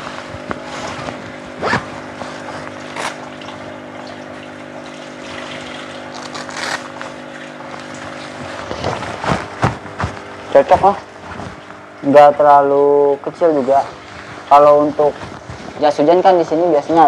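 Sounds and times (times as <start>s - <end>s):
water bubbling from air stone: 0.0s - 12.1s
aquarium pump humming: 0.0s - 17.0s
rain jacket rustling: 6.0s - 11.9s, 14.0s - 15.9s.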